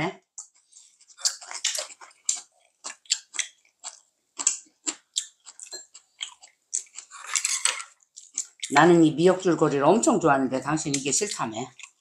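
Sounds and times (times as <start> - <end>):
crunchy chewing: 0.4 - 8.7, 11.2 - 12.0
wet mouth sounds: 0.4 - 8.8.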